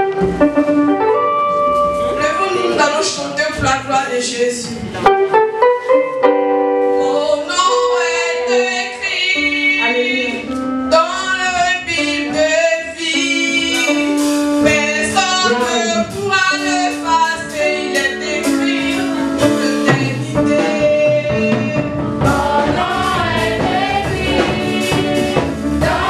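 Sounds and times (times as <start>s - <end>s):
women singing gospel song: 7.0s - 26.0s
percussion strokes: 22.2s - 26.0s.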